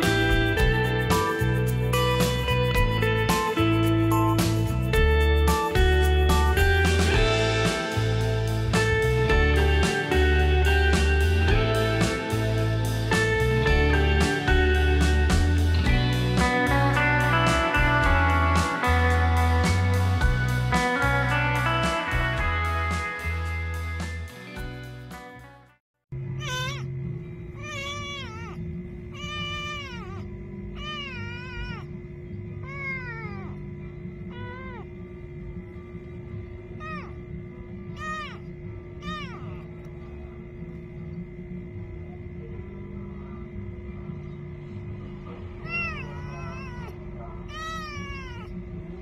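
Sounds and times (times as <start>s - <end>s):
kitten meowing: 26.4s - 26.9s, 27.6s - 30.2s, 30.8s - 31.9s, 32.6s - 33.6s, 36.8s - 37.2s, 37.9s - 38.4s, 39.0s - 39.6s, 45.6s - 48.6s.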